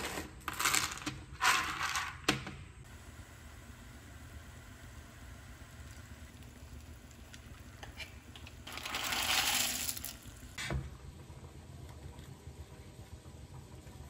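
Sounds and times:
dry pasta rattling into pan: 8.6 - 10.5.

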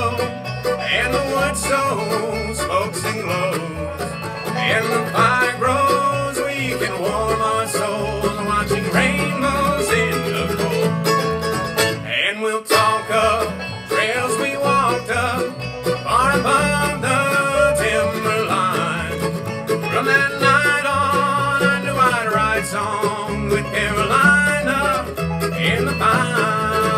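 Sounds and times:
banjo picking: 0.0 - 26.9
bowed fiddle: 0.0 - 26.9
guitar: 0.0 - 26.9
plucked upright bass: 0.0 - 26.9.

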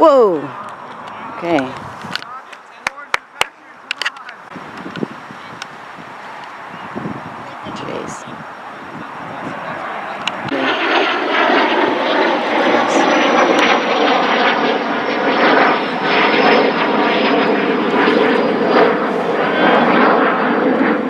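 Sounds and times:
high whine falling in pitch: 2.7 - 21.0
loud engine drone: 7.6 - 21.0.

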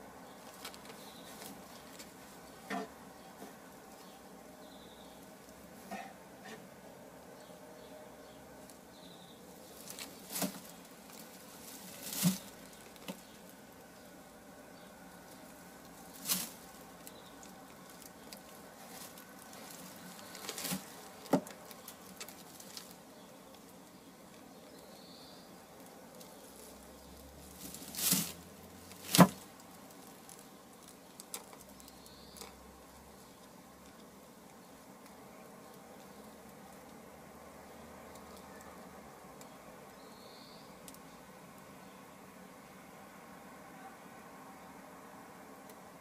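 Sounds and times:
faint steady background noise: 0.0 - 46.0
dry straw crackling: 0.2 - 6.7, 8.5 - 41.7.

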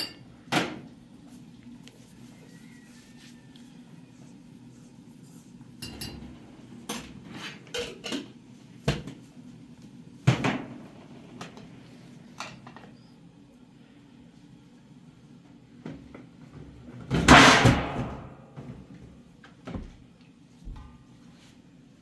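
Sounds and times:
dishes clinking on metal counter: 0.0 - 0.8, 5.8 - 8.4, 12.4 - 13.0.

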